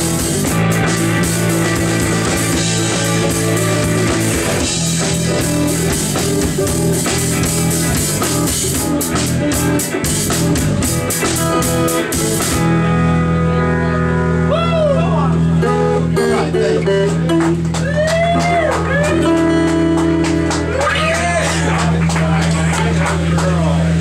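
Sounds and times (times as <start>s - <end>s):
drums and cymbals: 0.0s - 12.8s
rock band playing: 0.0s - 24.0s
held guitar chord ringing: 12.6s - 17.7s.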